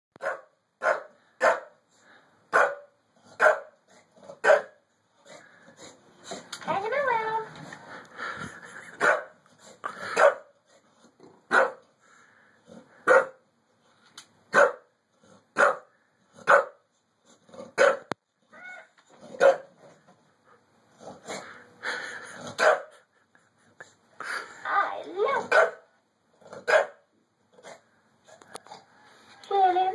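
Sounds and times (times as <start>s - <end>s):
dog barking: 0.2s - 1.8s, 2.5s - 3.8s, 4.4s - 4.8s, 9.0s - 9.3s, 10.1s - 10.5s, 11.5s - 11.8s, 13.0s - 13.4s, 14.5s - 14.9s, 15.6s - 16.8s, 17.8s - 18.1s, 19.4s - 19.7s, 22.6s - 22.9s, 25.5s - 25.8s, 26.6s - 27.0s.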